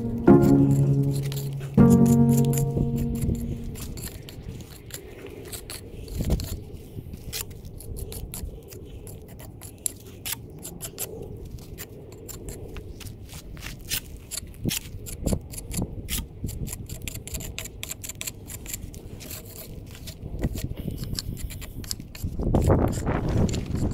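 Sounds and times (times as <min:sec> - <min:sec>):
jointing tool scraping mortar: 0:16.5 - 0:23.9.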